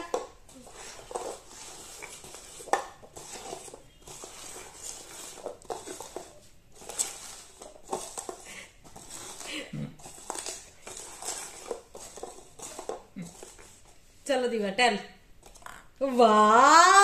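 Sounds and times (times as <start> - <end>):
paper cups sliding on glass: 0.5 - 13.9.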